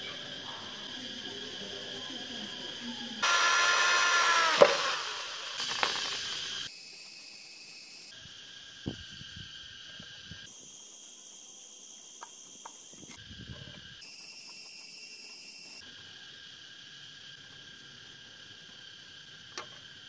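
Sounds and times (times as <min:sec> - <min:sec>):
high insect chirr: 0:00.0 - 0:20.0
electric drill whining down: 0:03.0 - 0:06.7
drill click: 0:03.2 - 0:06.2.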